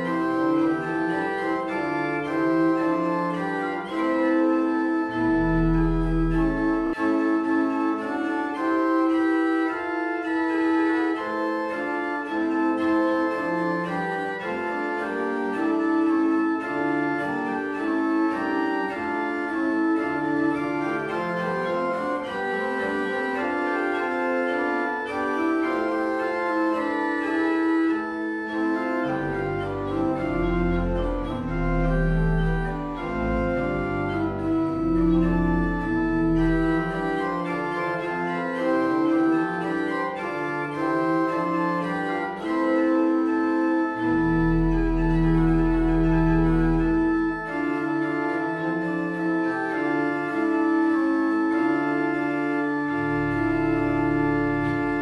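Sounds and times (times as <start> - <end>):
pipe organ playing: 0.0 - 55.0.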